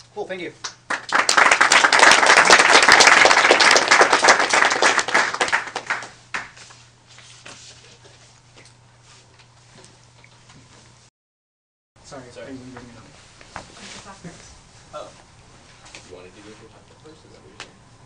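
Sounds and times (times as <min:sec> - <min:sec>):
audience applauding: 0:00.9 - 0:06.6.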